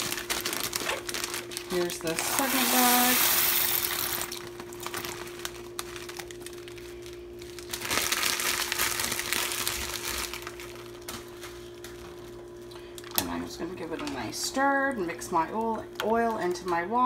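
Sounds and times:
plastic bag crinkling: 0:00.0 - 0:12.3
steady low hum: 0:00.0 - 0:17.0
dry pasta pouring into pot: 0:02.2 - 0:05.2.

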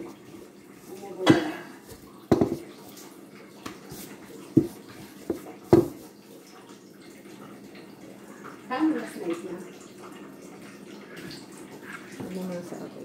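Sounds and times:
rolling pin rolling dough: 0:01.8 - 0:03.0, 0:03.7 - 0:06.1
rolling pin knocks on stone: 0:02.3 - 0:02.6, 0:05.7 - 0:06.0.

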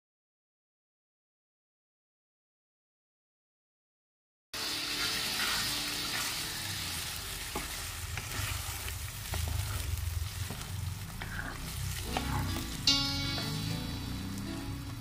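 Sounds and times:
meat sauce sizzling in a frying pan: 0:04.6 - 0:15.0.

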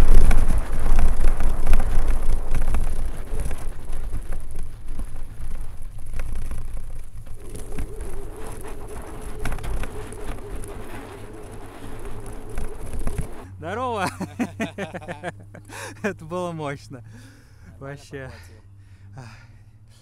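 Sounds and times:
wind rumble on microphone: 0:00.0 - 0:15.1
tyres crackling on snow: 0:00.0 - 0:17.0
electric motor whine: 0:05.8 - 0:13.5.

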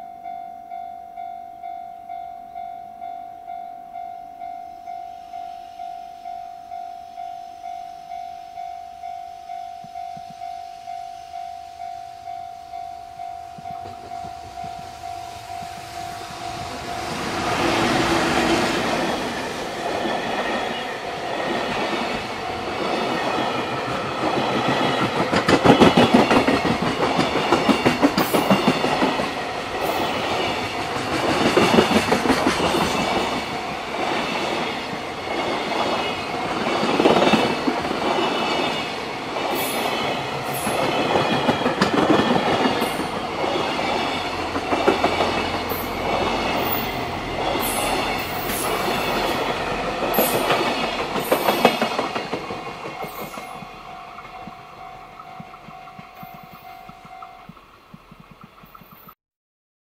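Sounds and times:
train wheels clattering over rail joints: 0:13.6 - 0:54.6.

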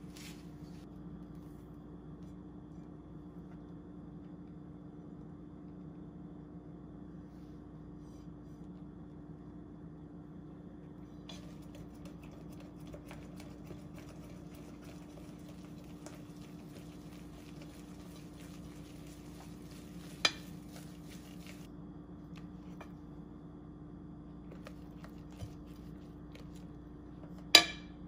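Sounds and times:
whisk stirring batter in bowl: 0:11.0 - 0:21.7.

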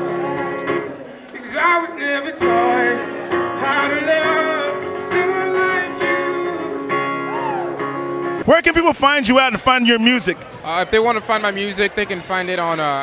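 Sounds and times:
acoustic guitars playing: 0:00.0 - 0:10.6
man singing into microphone: 0:01.4 - 0:07.0.

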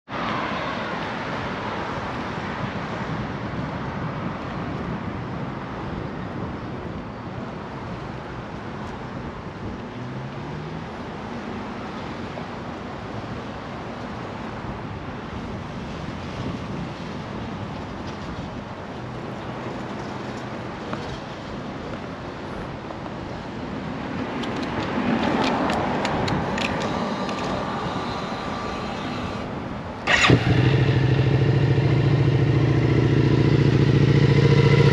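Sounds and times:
passing vehicles hum: 0:00.1 - 0:34.9
road traffic hiss: 0:00.1 - 0:34.9
handling clicks and knocks: 0:24.4 - 0:27.6.

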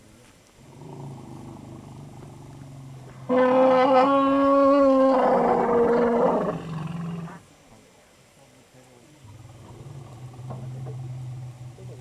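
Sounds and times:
elephant calling: 0:03.0 - 0:07.4.

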